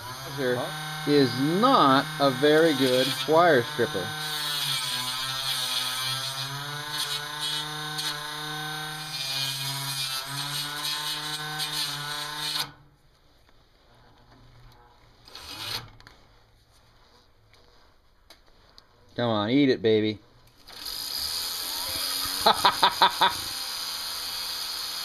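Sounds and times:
small electric motor whining: 0.0s - 12.8s, 20.5s - 25.0s.

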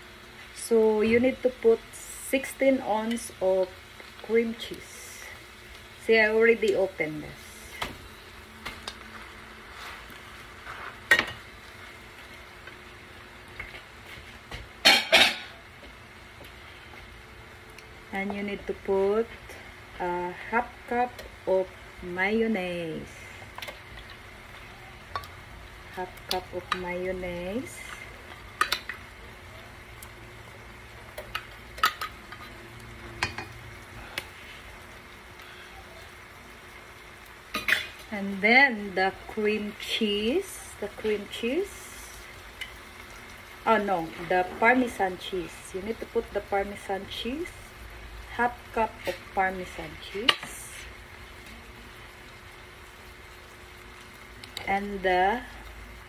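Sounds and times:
frying pan sizzling: 0.0s - 56.0s
kitchenware clattering: 14.8s - 15.5s.

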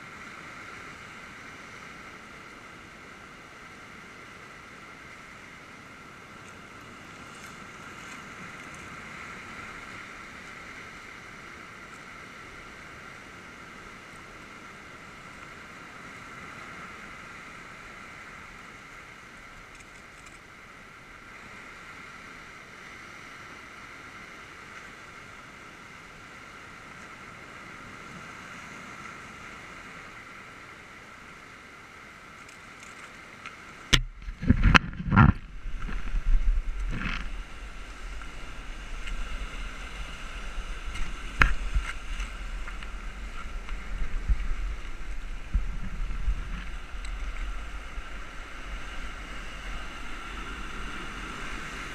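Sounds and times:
wind rumble on microphone: 33.8s - 51.9s
surf breaking on rocks: 33.9s - 51.9s
thumps on microphone: 34.0s - 37.3s.

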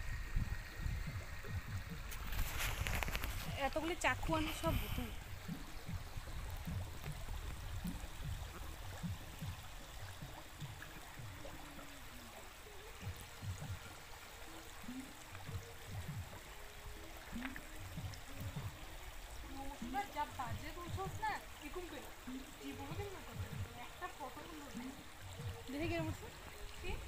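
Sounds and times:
stream babbling over stones: 0.0s - 27.0s.

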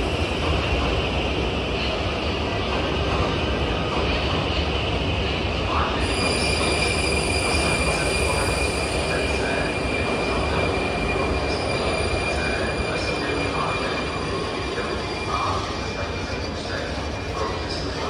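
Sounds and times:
metro train rumbling: 0.0s - 18.0s
wheels and brakes squealing: 6.0s - 16.8s.

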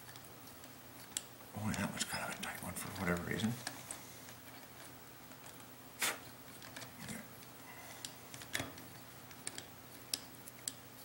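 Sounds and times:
faint metal clicks and taps: 6.5s - 11.0s.

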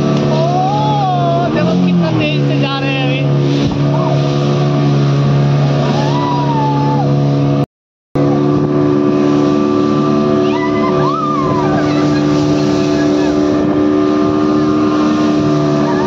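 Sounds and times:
motorboat engine drone: 0.0s - 7.6s, 8.2s - 16.0s
higher tone rising and falling: 10.0s - 16.0s.

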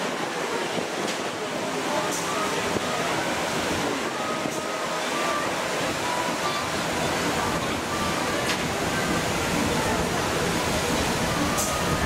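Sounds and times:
murmur of voices: 0.0s - 12.0s
wind on microphone: 5.4s - 12.0s.

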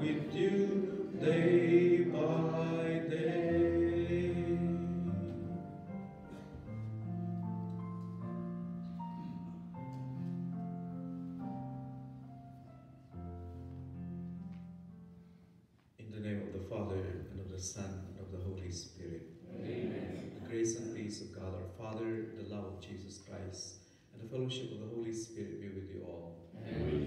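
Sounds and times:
voices singing: 0.0s - 5.6s, 26.6s - 27.0s
keyboard chords: 0.0s - 15.2s.

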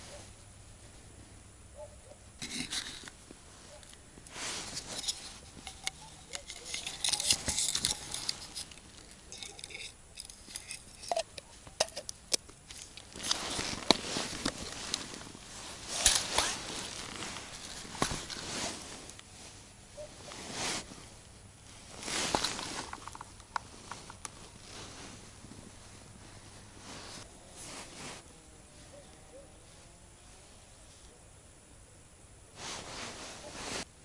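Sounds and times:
rustling of clothing and hands: 2.4s - 11.9s, 12.6s - 29.1s, 32.6s - 33.9s
small clicks of plastic and metal gear: 4.8s - 15.1s.

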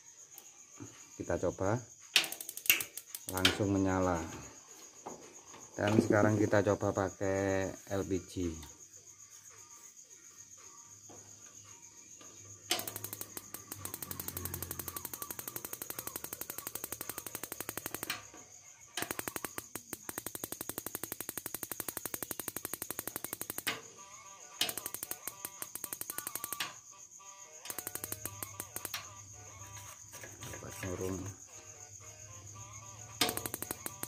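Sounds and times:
igniter sparking with rapid clicks: 2.1s - 3.8s, 12.7s - 18.4s, 19.0s - 23.9s, 24.6s - 26.8s, 27.6s - 29.1s, 33.2s - 34.0s.

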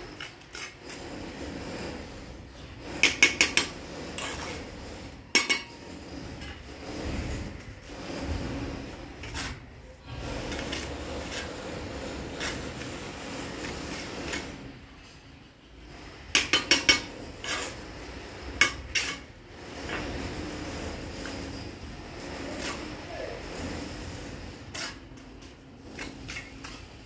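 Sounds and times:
bricks scraping: 0.0s - 27.0s
bricks clinking together: 3.0s - 4.6s, 16.3s - 21.5s.

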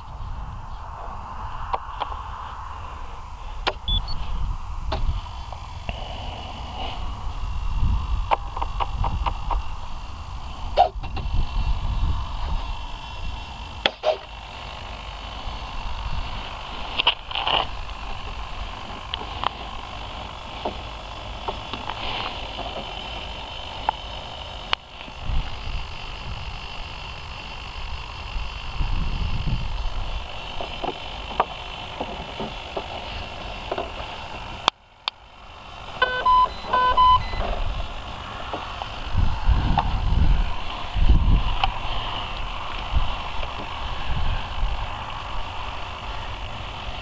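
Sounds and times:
wind rumble on microphone: 0.0s - 13.9s, 25.1s - 27.2s, 27.8s - 30.9s, 37.0s - 47.0s
short electronic beeps: 3.9s - 4.2s, 36.0s - 37.5s.

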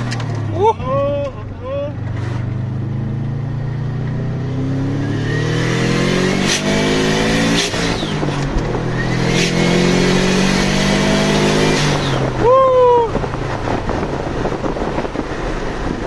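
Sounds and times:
car engine accelerating hard: 0.0s - 12.5s.

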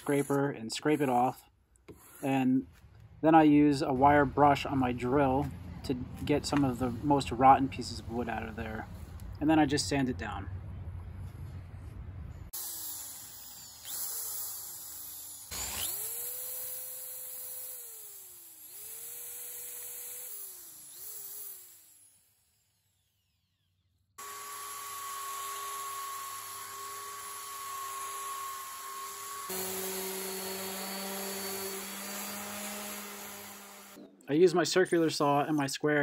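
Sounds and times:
drill wire brush scouring wood: 0.0s - 2.7s, 12.6s - 22.6s, 24.2s - 34.0s
belt sander running: 12.6s - 34.0s.

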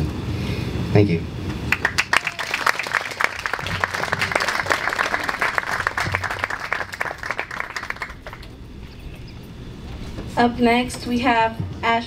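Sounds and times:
audience applauding: 1.7s - 8.7s.

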